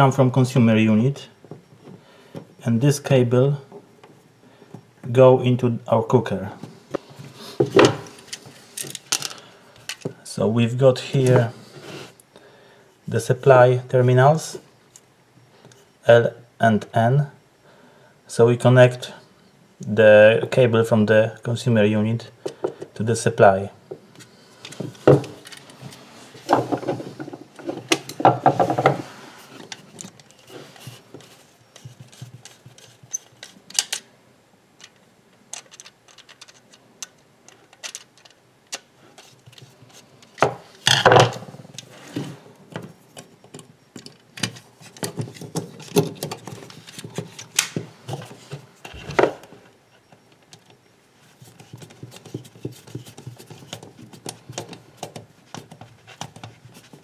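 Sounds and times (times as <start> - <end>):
hands handling plastic switch unit: 42.7 - 50.8.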